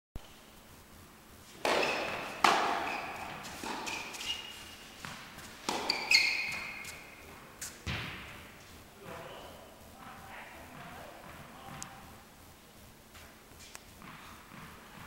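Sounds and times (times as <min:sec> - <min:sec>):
tennis ball knocks echoing: 0:01.6 - 0:04.1, 0:05.7 - 0:06.8.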